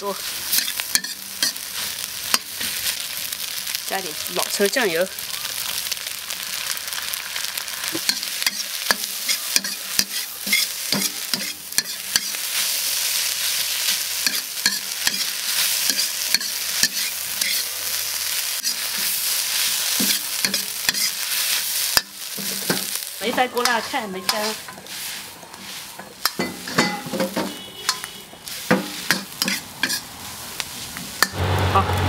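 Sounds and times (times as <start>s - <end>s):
rice sizzling in a wok: 0.0s - 32.0s
metal ladle scraping a wok: 0.2s - 2.9s, 7.9s - 12.7s, 13.3s - 17.7s, 18.4s - 31.8s.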